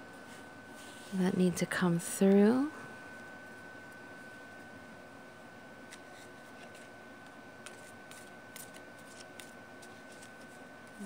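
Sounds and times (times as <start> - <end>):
cards being shuffled: 5.8 - 11.0.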